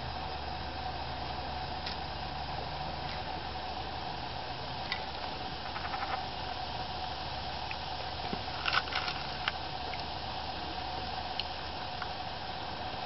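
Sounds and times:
faint steady hum: 0.0s - 13.0s
outdoor hiss: 0.0s - 13.0s.

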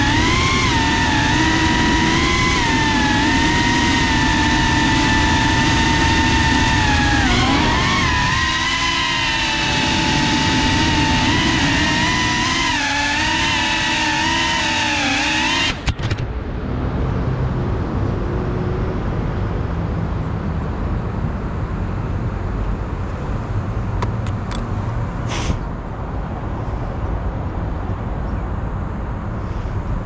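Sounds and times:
road traffic hum: 0.0s - 30.0s.

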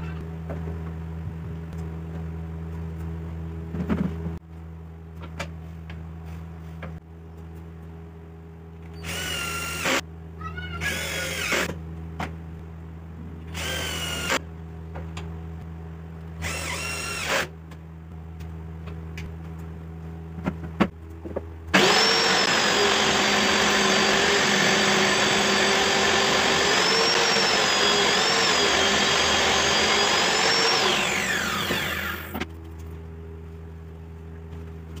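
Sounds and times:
power drill driving screws: 9.0s - 10.0s, 10.8s - 11.7s, 13.5s - 14.4s, 16.4s - 17.5s, 21.8s - 32.4s
table saw running: 21.8s - 32.4s.

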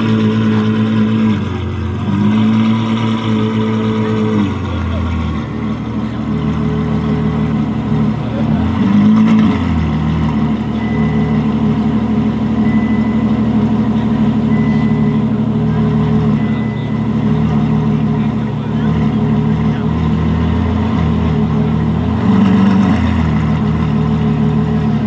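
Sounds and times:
car engine idling: 0.0s - 25.0s
faint high beep: 10.5s - 19.4s.

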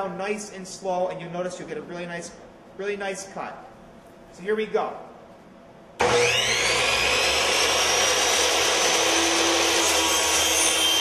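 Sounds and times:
miter saw motor whining: 6.0s - 11.0s.

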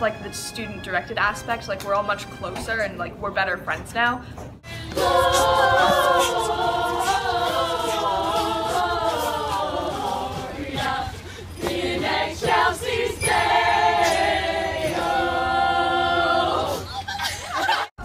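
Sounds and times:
group singing unaccompanied: 4.7s - 16.9s.

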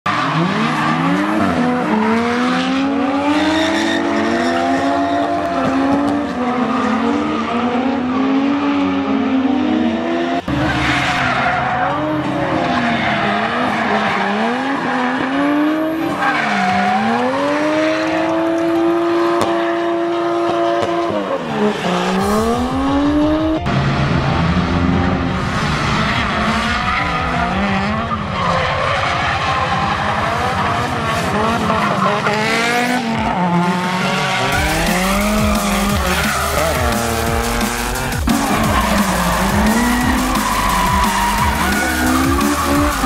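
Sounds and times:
car engines revving: 0.0s - 43.0s
tyre squeal: 38.3s - 43.0s.

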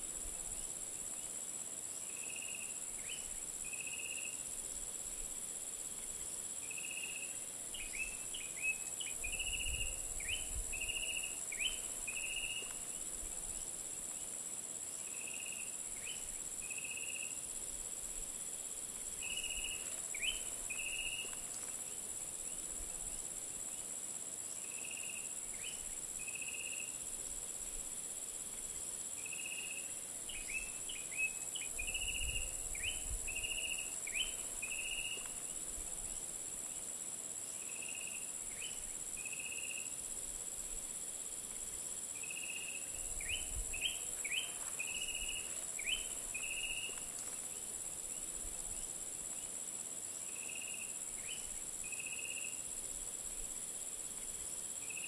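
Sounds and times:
crickets and cicadas droning: 0.0s - 55.0s
wind rumble on microphone: 9.2s - 11.0s, 31.8s - 33.6s, 43.0s - 44.0s.

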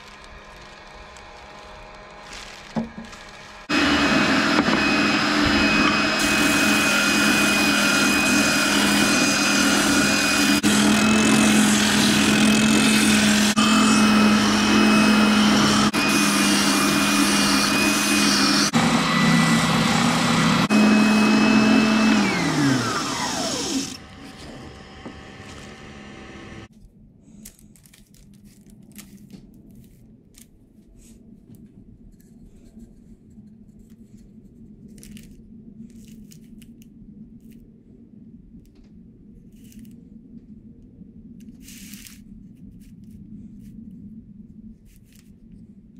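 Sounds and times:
spindle sander humming: 0.0s - 26.7s
sander winding down: 0.5s - 26.7s.

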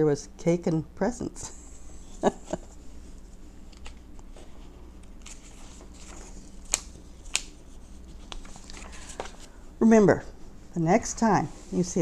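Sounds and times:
paper rustling: 3.7s - 9.6s
sharp paper crackles: 5.2s - 7.6s, 8.2s - 9.5s.

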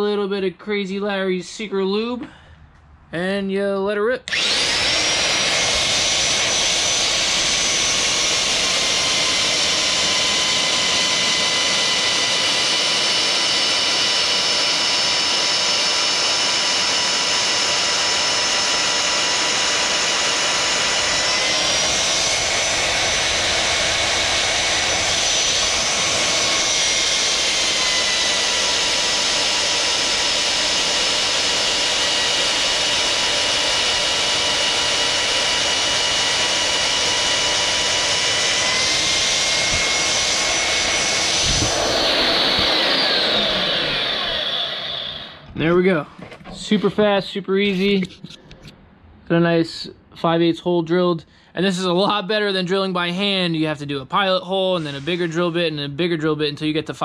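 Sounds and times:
drill motor whining: 4.3s - 45.8s, 54.5s - 55.8s.

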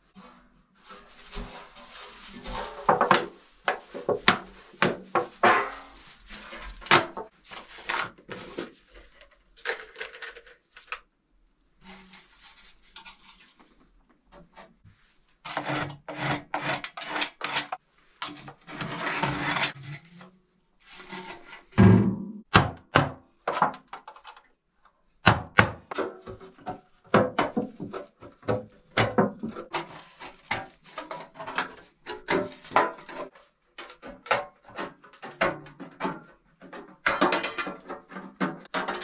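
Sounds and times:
straw rustling: 0.2s - 9.2s.

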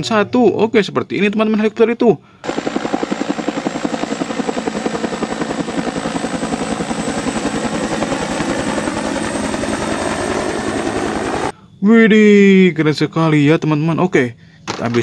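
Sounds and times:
helicopter rotor chop: 2.4s - 11.5s.

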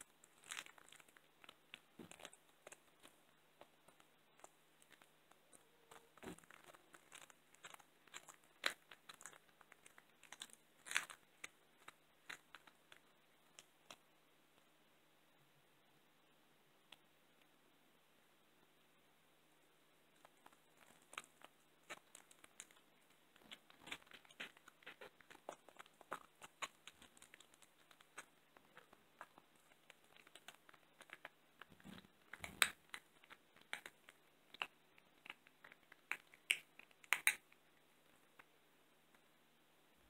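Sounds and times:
cat crunching bone: 20.4s - 37.5s.

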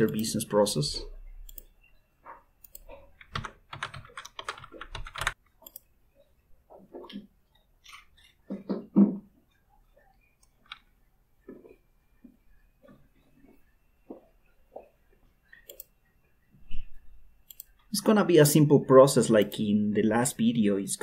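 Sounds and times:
computer keyboard typing: 0.0s - 0.6s, 1.4s - 5.9s, 17.4s - 18.1s
mouse clicks: 15.5s - 15.9s, 16.7s - 17.8s.

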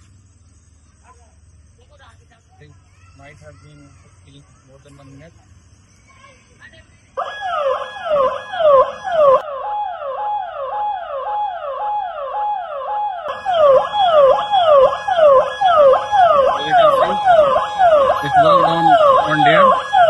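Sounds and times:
electronic warning siren yelping: 7.2s - 20.0s.

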